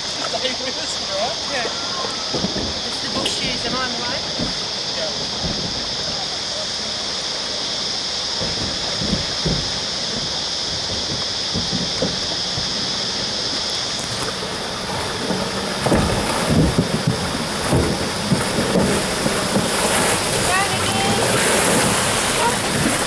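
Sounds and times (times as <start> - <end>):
river water rushing and splashing: 0.0 - 23.0
steady high hiss: 0.0 - 23.0
vehicle low thumps: 2.0 - 23.0.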